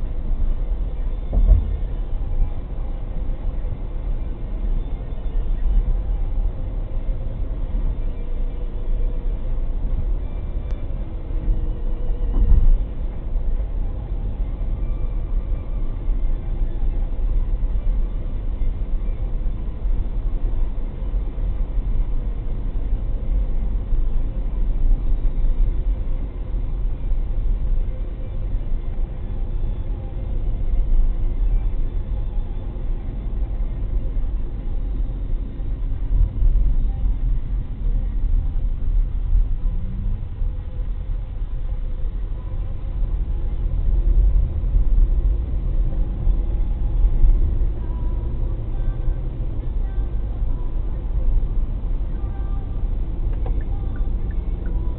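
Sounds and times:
road and engine rumble in car: 0:00.0 - 0:54.9.

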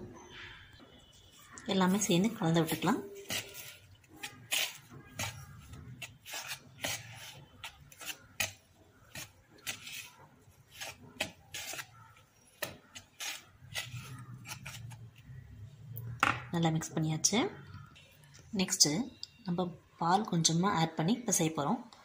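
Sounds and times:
whisk scratching in plastic bowl: 0:02.6 - 0:12.2.

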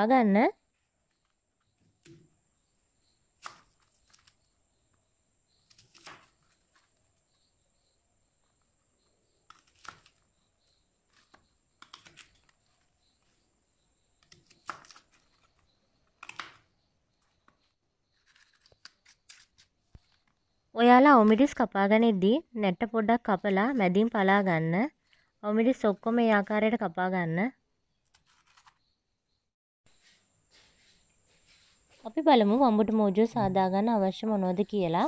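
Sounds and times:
knife cutting onions: 0:03.4 - 0:04.3, 0:05.6 - 0:07.0, 0:14.2 - 0:15.6.

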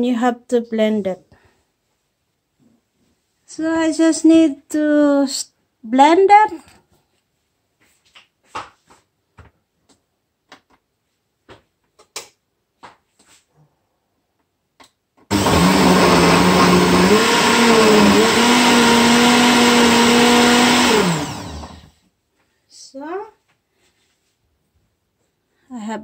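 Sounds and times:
blender motor whining: 0:15.3 - 0:21.9.

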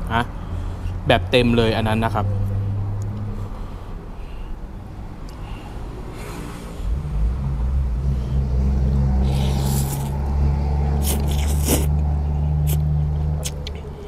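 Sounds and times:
engine droning: 0:00.0 - 0:14.0
person slurping noodles: 0:09.2 - 0:10.2, 0:10.9 - 0:12.0, 0:12.6 - 0:13.6.

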